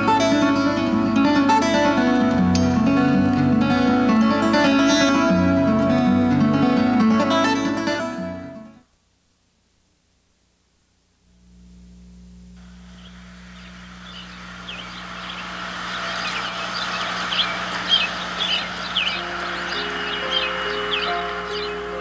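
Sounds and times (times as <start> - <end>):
steady low hum: 8.9 - 22.0
birds calling: 12.7 - 22.0.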